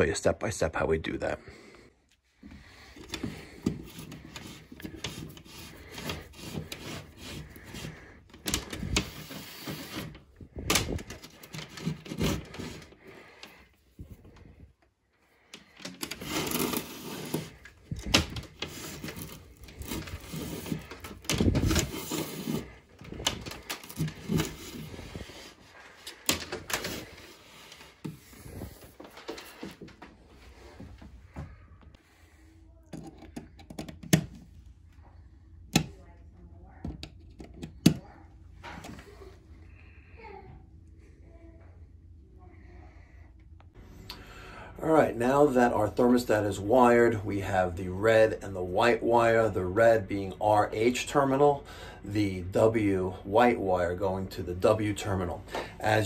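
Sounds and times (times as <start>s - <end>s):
wire rustling: 2.7s - 31.3s.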